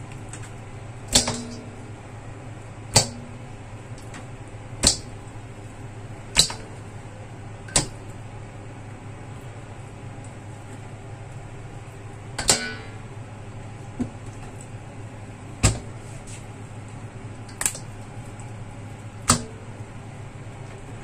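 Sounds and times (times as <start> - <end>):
steady low hum: 0.0 - 21.0
sharp knocks: 1.1 - 1.7.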